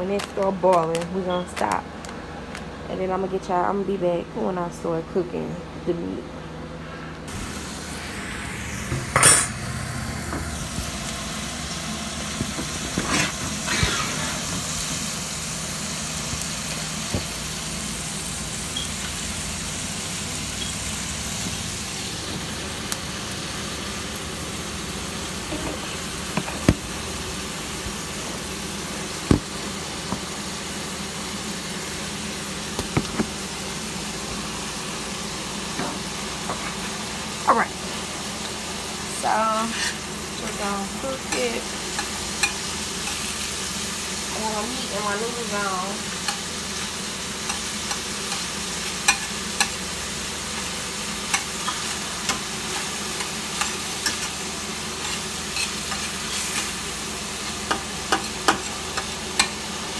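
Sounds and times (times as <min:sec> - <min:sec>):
ground beef sizzling in a pan: 0:10.1 - 0:59.9.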